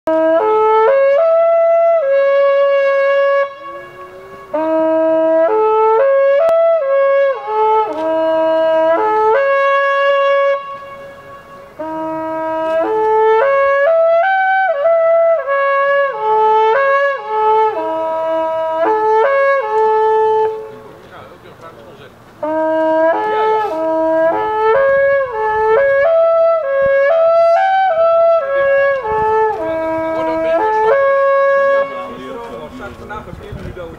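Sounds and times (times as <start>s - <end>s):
long wooden horn blowing held notes: 0.1s - 33.9s.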